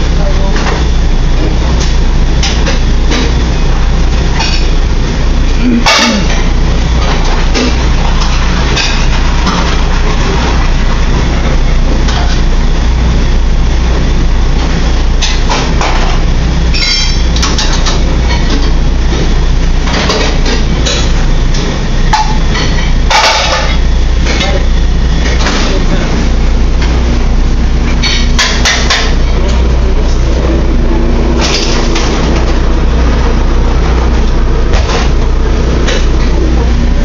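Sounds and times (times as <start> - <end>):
metal pans and utensils clinking: 22.1 - 25.9.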